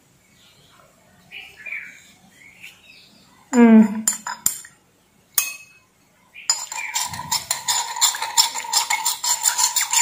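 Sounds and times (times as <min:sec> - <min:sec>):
spoon clinking against glass bowl: 0:03.8 - 0:04.7, 0:05.4 - 0:05.8, 0:06.5 - 0:10.0.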